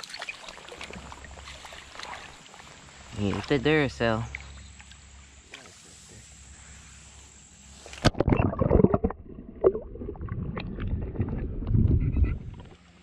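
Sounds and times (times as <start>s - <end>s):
stream hiss: 0.0s - 8.1s
underwater sloshing and gurgling: 0.0s - 13.0s.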